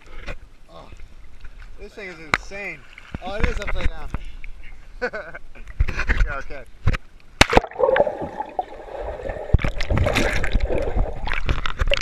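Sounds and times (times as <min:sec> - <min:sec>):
underwater gurgling and sloshing: 0:00.0 - 0:05.0, 0:05.6 - 0:12.0
clicks and knocks on camera: 0:11.3 - 0:12.0.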